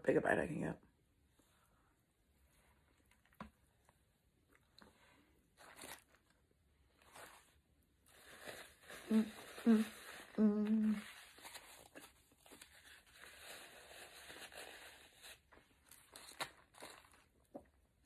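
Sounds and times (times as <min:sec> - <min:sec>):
paper napkin rustling: 0:05.6 - 0:17.2
person humming: 0:09.0 - 0:11.1.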